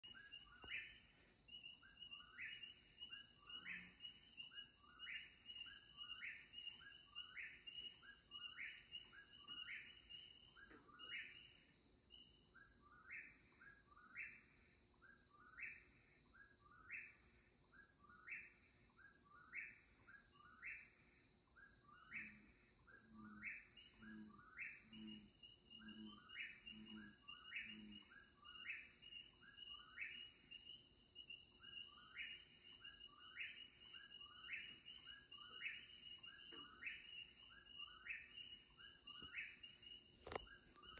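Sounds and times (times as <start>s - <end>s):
crickets trilling: 21.6s - 40.9s.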